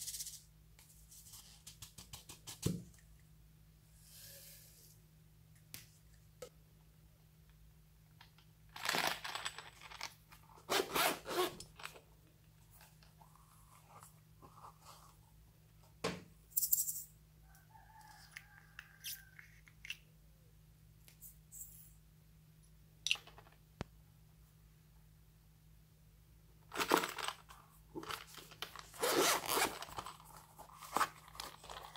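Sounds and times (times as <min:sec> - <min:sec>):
zipper pulled open: 0:10.7 - 0:11.6, 0:28.9 - 0:30.1.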